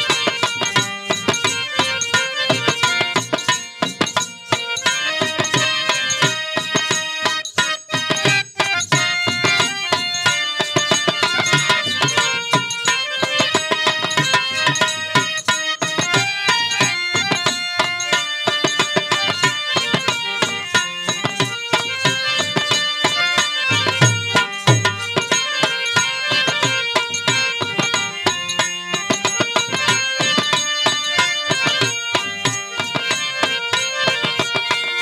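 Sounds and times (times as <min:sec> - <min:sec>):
harmonium chords: 0:00.0 - 0:35.0
hand drum beat: 0:08.0 - 0:34.8.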